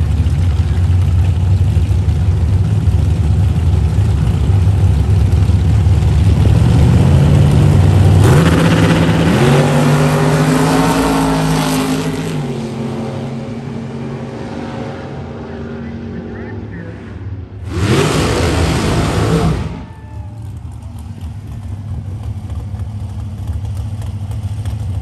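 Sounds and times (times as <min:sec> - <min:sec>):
drag car engines idling: 0:00.0 - 0:09.9, 0:15.2 - 0:25.0
drag car engines launching: 0:00.0 - 0:25.0.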